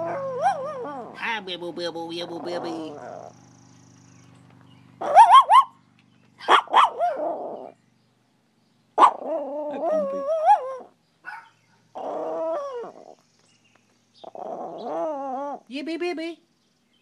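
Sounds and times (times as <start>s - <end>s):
small dog yipping and howling: 0.0s - 1.4s, 5.0s - 5.8s, 6.4s - 7.8s, 9.0s - 13.2s, 14.2s - 15.7s.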